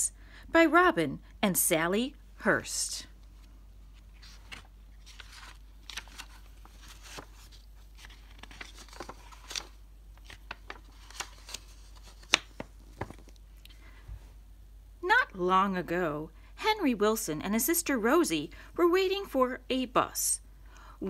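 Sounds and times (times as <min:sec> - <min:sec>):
book pages turning: 0:03.4 - 0:13.7
sharp paper snap: 0:10.3 - 0:12.6.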